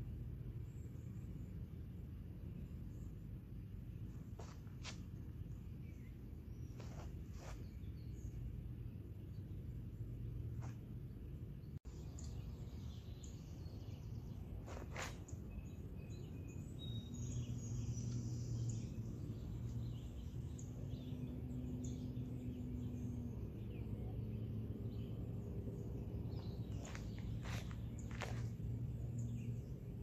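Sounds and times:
steady low rumble: 17.6s - 30.0s.

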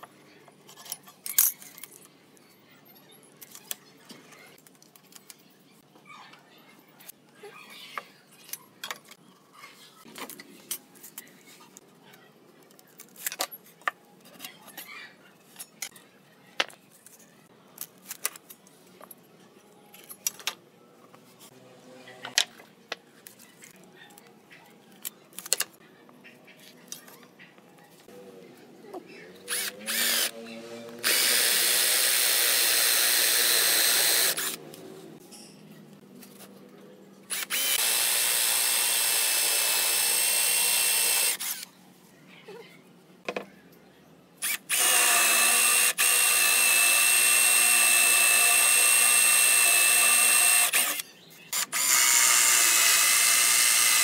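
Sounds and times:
cordless drill boring into wood: 29.5s - 30.3s, 31.0s - 34.6s, 37.3s - 41.6s, 44.4s - 51.0s, 51.6s - 54.0s.

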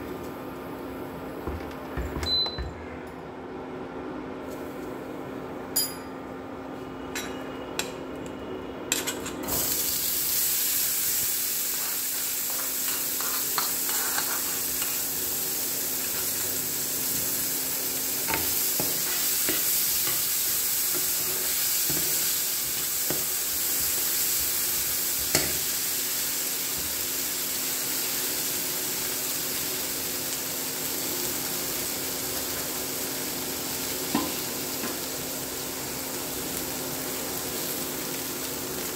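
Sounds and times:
corn sizzling in hot oil: 9.4s - 38.9s.

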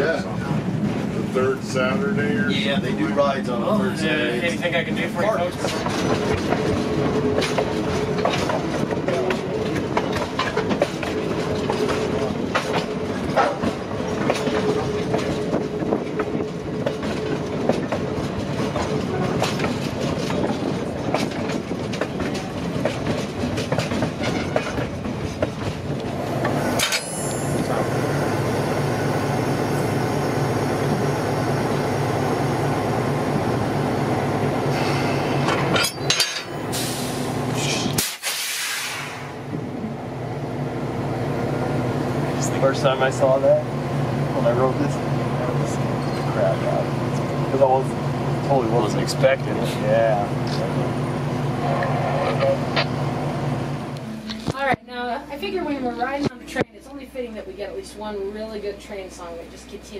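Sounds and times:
train rumble: 0.0s - 59.9s
wheels clicking over rail joints: 5.3s - 27.8s
diesel engine hum: 25.0s - 35.8s, 38.8s - 59.9s.

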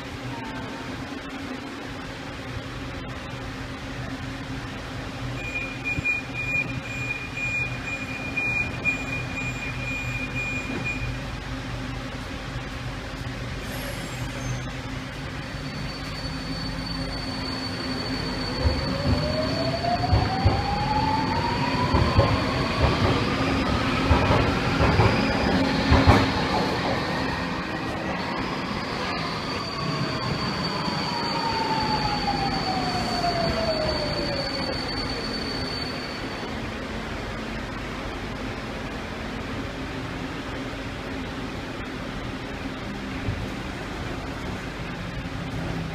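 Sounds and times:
thin high whistle: 15.5s - 21.3s, 28.3s - 36.6s.

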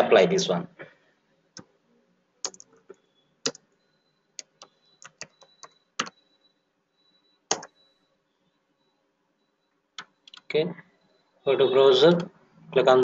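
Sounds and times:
typing on computer keyboard: 2.4s - 3.6s, 4.4s - 6.2s, 7.5s - 7.8s.

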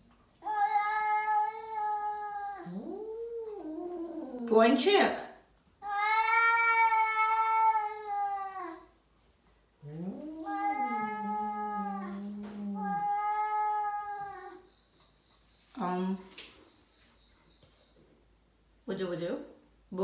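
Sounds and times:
cats yowling: 0.4s - 4.6s, 5.8s - 9.0s, 9.8s - 14.7s.

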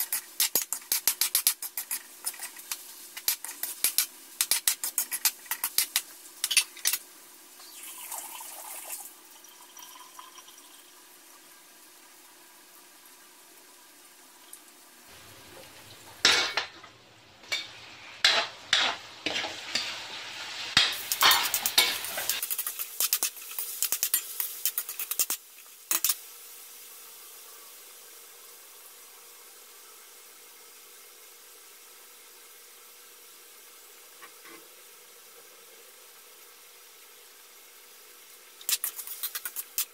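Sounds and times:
metal spatula scraping a wok: 0.0s - 7.0s, 17.4s - 26.2s, 38.6s - 39.9s
faint steady hiss: 0.0s - 39.9s.

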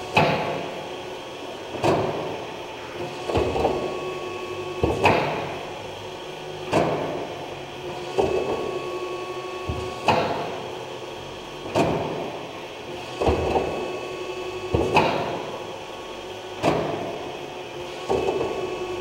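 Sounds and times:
clunk with rumble: 16.6s - 17.2s.

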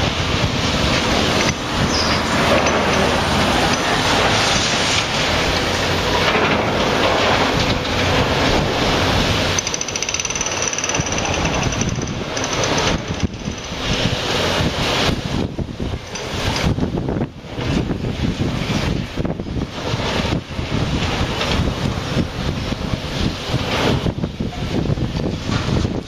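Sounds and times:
excavator machine noise: 0.0s - 26.0s
high-pitched steady squeal: 0.6s - 6.2s.

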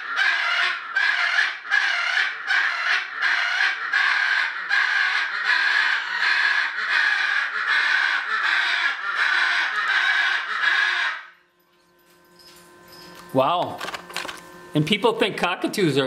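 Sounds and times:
macaw harsh squawks: 0.0s - 11.4s.

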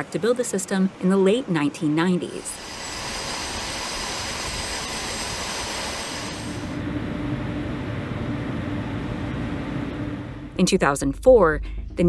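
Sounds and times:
jet engine rushing hiss: 2.2s - 6.9s
dull rumble with low hum: 2.5s - 12.0s.

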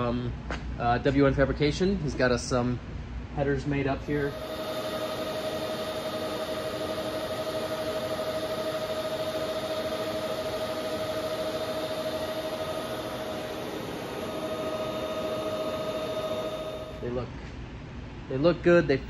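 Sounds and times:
welding arc buzzing: 4.2s - 17.1s.

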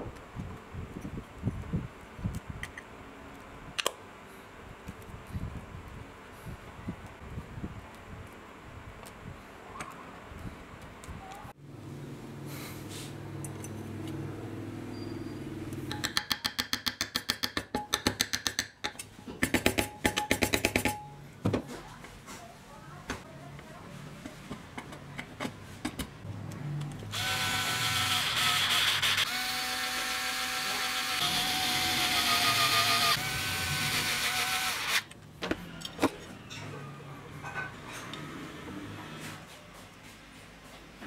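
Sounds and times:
hammer tapping on wooden block: 15.9s - 21.0s
electric screwdriver whining: 27.1s - 35.1s.

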